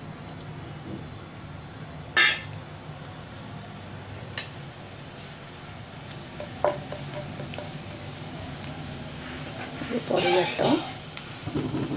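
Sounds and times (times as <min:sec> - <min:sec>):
spices sizzling in hot oil: 0:02.1 - 0:11.9.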